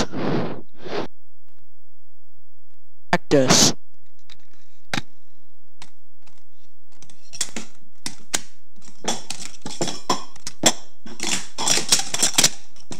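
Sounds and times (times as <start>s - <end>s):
plastic cups clacking: 5.8s - 12.9s.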